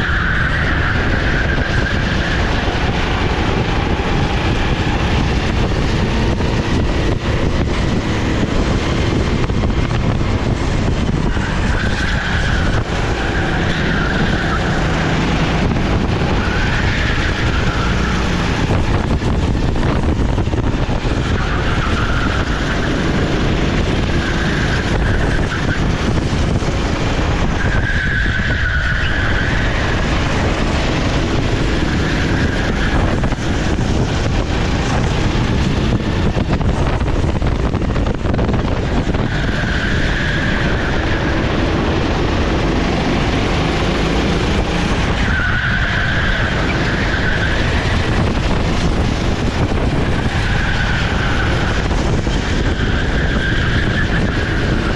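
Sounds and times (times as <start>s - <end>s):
tyre squeals: 0.0s - 5.2s, 10.6s - 18.6s, 21.0s - 26.4s, 27.4s - 35.7s, 38.8s - 41.9s, 44.9s - 49.0s, 49.9s - 54.9s
kart engine running hard: 0.0s - 54.9s.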